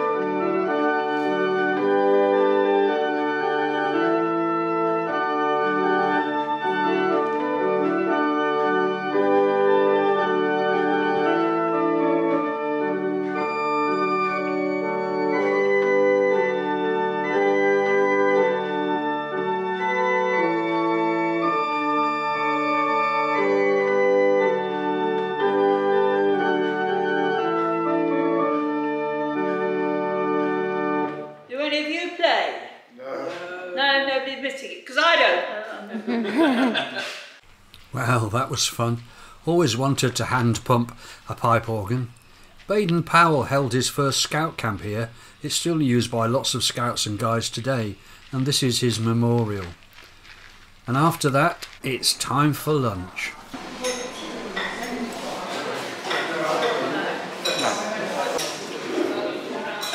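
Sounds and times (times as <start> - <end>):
pipe organ chords: 0.0 - 31.5.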